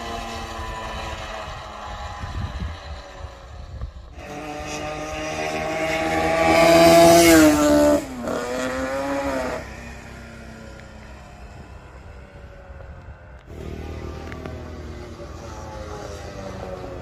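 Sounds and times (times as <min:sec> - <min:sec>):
two-stroke motorcycle engine revving: 0:00.0 - 0:10.8.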